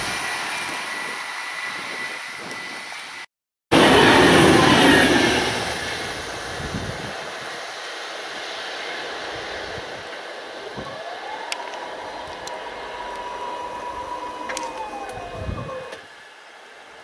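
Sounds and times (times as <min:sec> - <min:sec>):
electric train rumbling: 0:00.0 - 0:16.9
gliding motor whine: 0:10.6 - 0:16.2.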